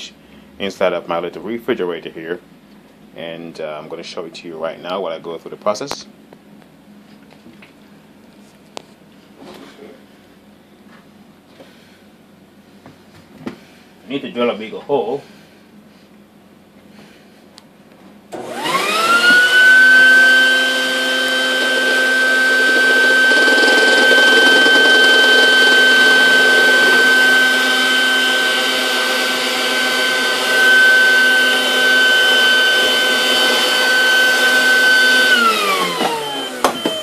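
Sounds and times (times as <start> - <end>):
shop vacuum motor whining: 18.3 - 37.0.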